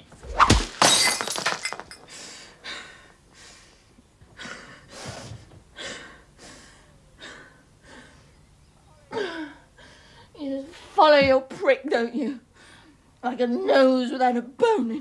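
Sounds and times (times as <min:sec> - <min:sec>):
object crashing against a door: 0:00.2 - 0:01.9
pieces scattering: 0:00.4 - 0:02.0.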